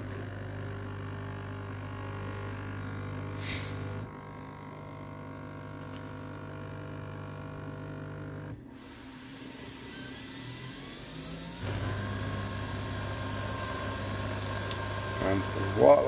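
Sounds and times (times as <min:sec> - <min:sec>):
coffee machine humming: 0:00.0 - 0:16.0
short hiss: 0:03.4 - 0:03.9.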